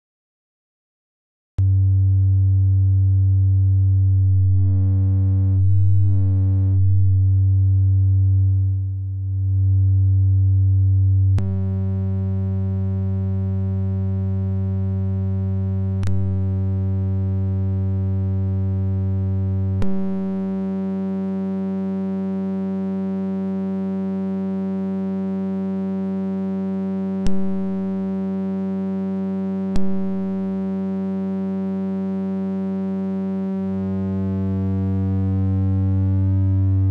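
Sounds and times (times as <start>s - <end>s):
low synth tone: 1.6s - 22.7s, 27.0s - 36.9s
control switch clicks: 27.3s - 27.7s.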